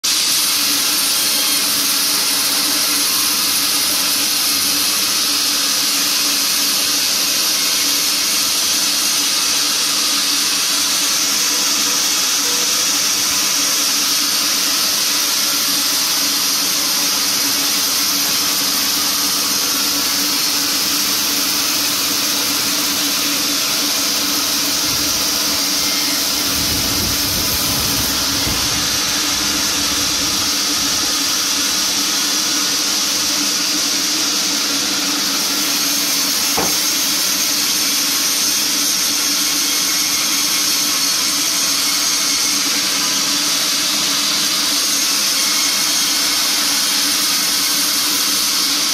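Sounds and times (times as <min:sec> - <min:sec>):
saw hum: 0:00.0 - 0:48.9
band saw blade hissing in wood: 0:12.2 - 0:38.4.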